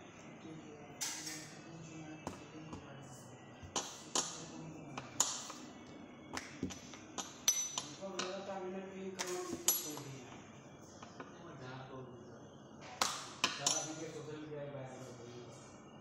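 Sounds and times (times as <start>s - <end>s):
knocks and taps on worktable: 6.3s - 8.4s.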